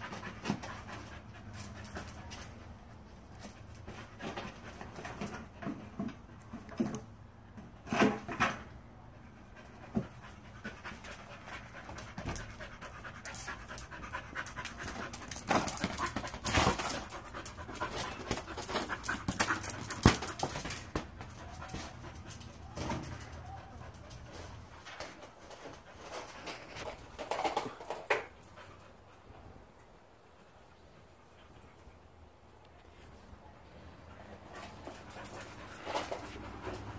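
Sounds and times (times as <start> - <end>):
dog panting hard: 9.4 - 20.2
ball thumps and scuffs: 18.3 - 22.0.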